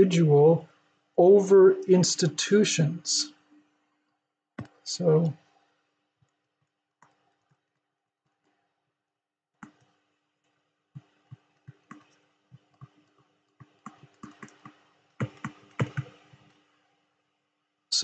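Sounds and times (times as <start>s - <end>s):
stylus tapping on touchscreen: 13.6s - 16.4s.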